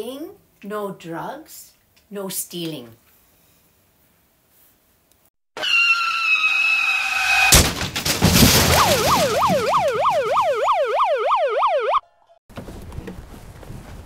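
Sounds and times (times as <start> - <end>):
siren yelping: 5.6 - 7.5, 8.7 - 12.1
sharp crash and clatter: 7.1 - 10.4.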